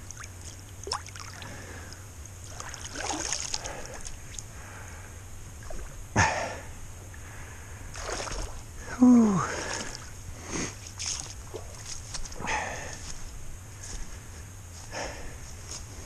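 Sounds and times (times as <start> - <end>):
river water sloshing and trickling: 0.0 - 4.5, 5.6 - 6.0, 7.9 - 8.7, 9.5 - 10.2, 10.8 - 12.1.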